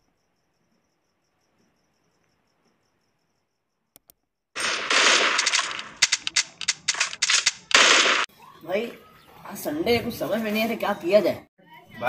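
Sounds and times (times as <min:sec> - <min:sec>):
automatic gunfire: 0:04.6 - 0:08.3.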